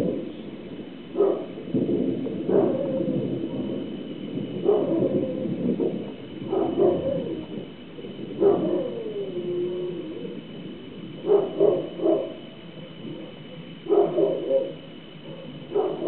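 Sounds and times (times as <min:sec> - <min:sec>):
dog barking: 0:01.1 - 0:01.6, 0:02.4 - 0:03.7, 0:04.6 - 0:05.5, 0:06.4 - 0:07.4, 0:08.4 - 0:09.1, 0:11.2 - 0:12.5, 0:13.8 - 0:16.0.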